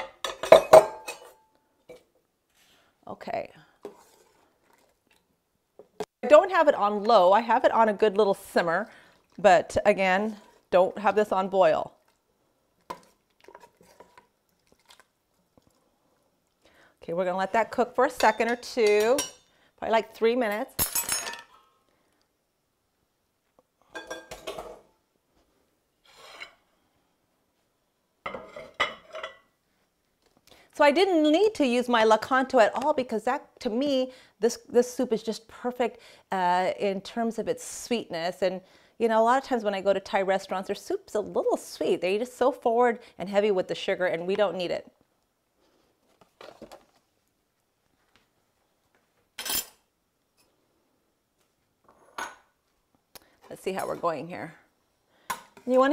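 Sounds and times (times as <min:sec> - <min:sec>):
ceramic dishes clinking: 0:00.0 - 0:01.4
dishes clattering: 0:00.0 - 0:02.0, 0:23.9 - 0:24.9, 0:28.3 - 0:29.5.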